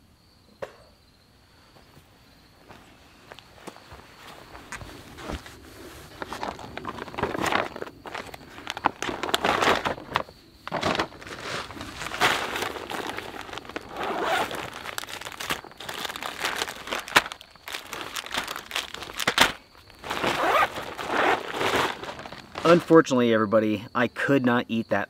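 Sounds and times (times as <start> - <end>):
stuff sack rustling: 4.0 - 23.0
plastic bag crinkling: 6.2 - 22.9.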